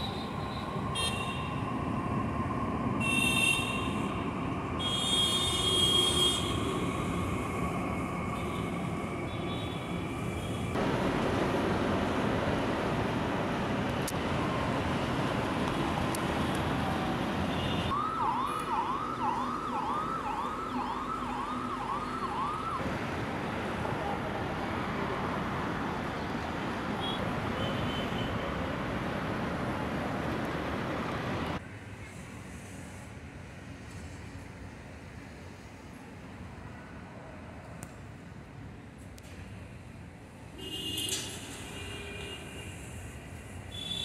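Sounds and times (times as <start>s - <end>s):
road traffic: 0.0s - 44.0s
metro train rumbling: 3.7s - 4.8s, 6.4s - 15.7s
siren wailing: 15.8s - 22.8s.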